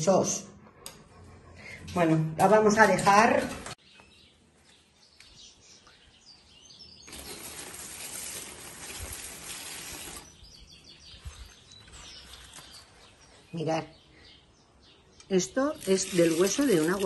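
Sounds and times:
small birds chirping: 0:03.7 - 0:08.2, 0:09.5 - 0:17.0
water pouring onto plant: 0:07.1 - 0:10.4, 0:15.7 - 0:17.0.

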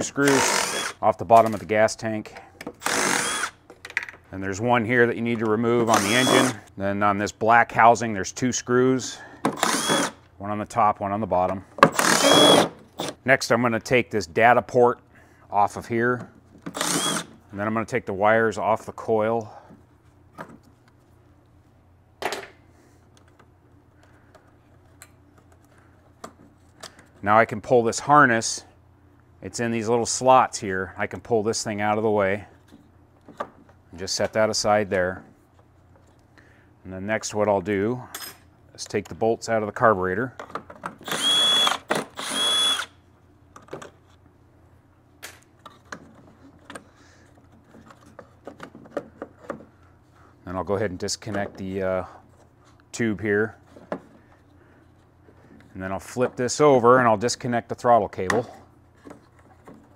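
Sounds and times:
cordless drill whining: 0:00.2 - 0:01.0, 0:02.8 - 0:03.6, 0:05.8 - 0:06.7, 0:09.6 - 0:10.2, 0:11.9 - 0:13.2, 0:16.7 - 0:17.3, 0:41.0 - 0:42.9.

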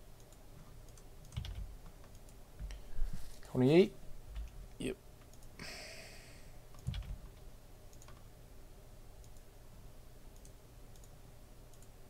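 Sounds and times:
faint sparse clicks: 0:07.9 - 0:08.2, 0:09.2 - 0:09.5, 0:10.3 - 0:12.0.

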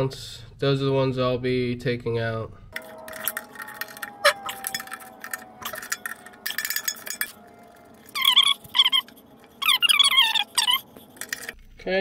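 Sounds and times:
wavering high squeaks: 0:02.8 - 0:11.6.

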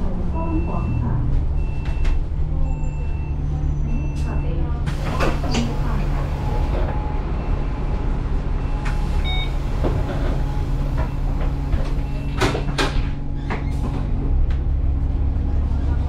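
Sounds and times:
bus engine humming: 0:00.0 - 0:16.0
short beep: 0:08.6 - 0:09.7.

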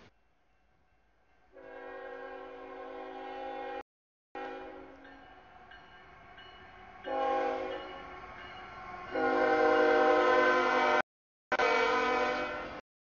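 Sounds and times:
locomotive air horn blasts: 0:01.6 - 0:03.8, 0:04.4 - 0:05.0, 0:07.1 - 0:07.9, 0:09.1 - 0:12.8.

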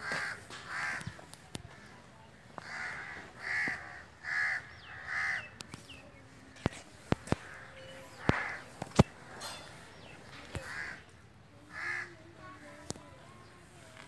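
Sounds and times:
crow cawing: 0:00.0 - 0:01.9, 0:02.6 - 0:05.6, 0:07.4 - 0:08.7, 0:10.5 - 0:11.1, 0:11.7 - 0:12.2.

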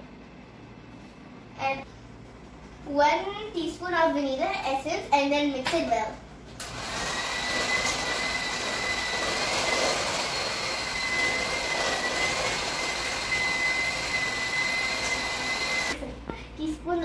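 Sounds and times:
electric mixer motor whine: 0:06.6 - 0:16.0.

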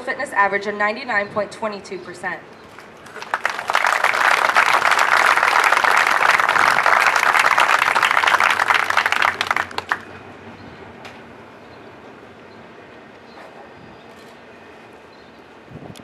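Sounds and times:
audience applauding: 0:02.8 - 0:10.2.

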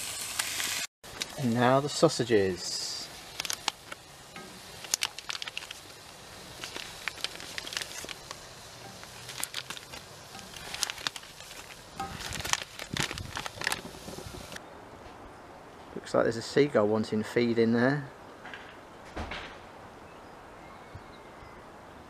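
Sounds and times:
plastic packet crinkling: 0:03.1 - 0:14.6.

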